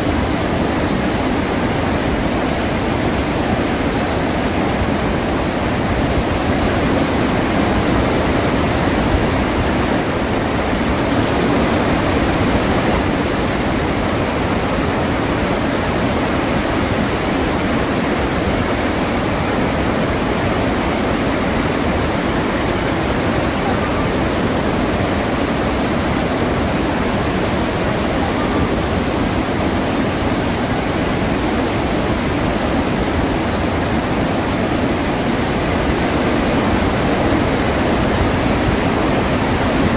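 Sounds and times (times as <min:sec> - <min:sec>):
waterfalls rushing: 0:00.0 - 0:39.9.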